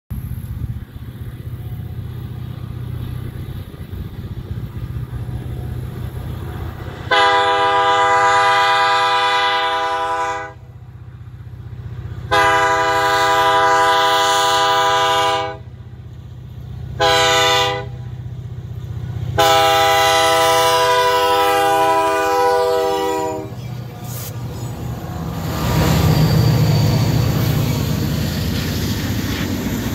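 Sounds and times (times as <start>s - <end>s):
diesel locomotive engine rumble: 0.1s - 29.9s
locomotive air horn blasts: 7.0s - 10.7s, 12.3s - 15.7s, 17.0s - 18.1s, 19.4s - 24.7s.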